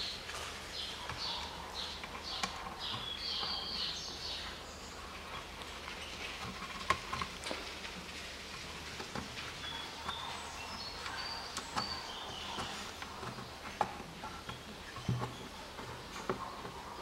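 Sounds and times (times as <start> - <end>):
bird chirps: 0.0 - 5.0, 9.6 - 17.0.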